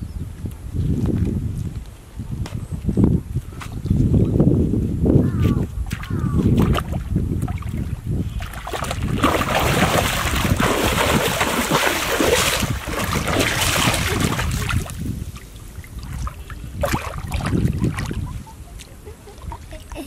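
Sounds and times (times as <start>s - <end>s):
water splashing and sloshing: 5.8s - 20.0s.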